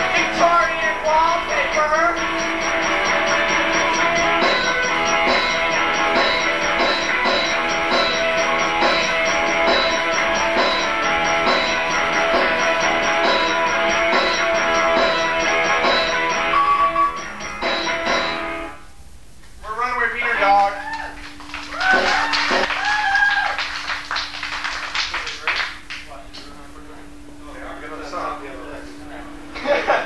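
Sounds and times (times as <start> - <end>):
drum kit steady beat: 0.0 - 18.8, 21.4 - 22.8
electric guitar playing: 0.0 - 18.8.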